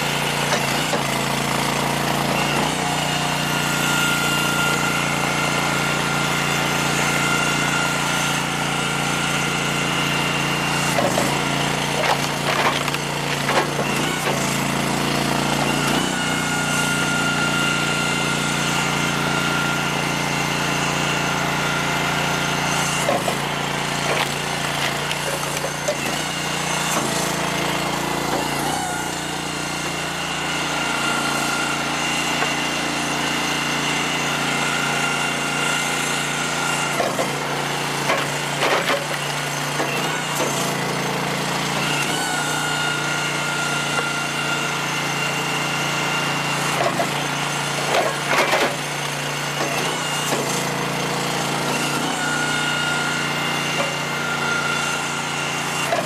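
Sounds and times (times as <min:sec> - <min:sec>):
gas engine running: 0:00.0 - 0:56.0
wood cracking and knocking: 0:11.9 - 0:14.5, 0:24.0 - 0:26.0.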